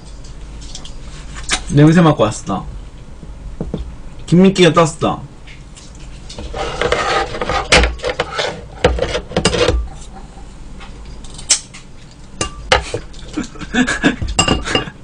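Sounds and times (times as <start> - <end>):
utensils clinking on metal bowl: 6.3 - 10.1, 14.3 - 15.0.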